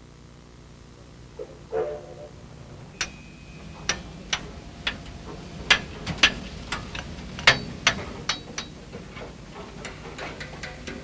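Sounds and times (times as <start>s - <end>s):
low steady rumble: 0.0s - 11.0s
sharp metallic taps and clicks: 3.9s - 5.1s, 5.7s - 8.8s.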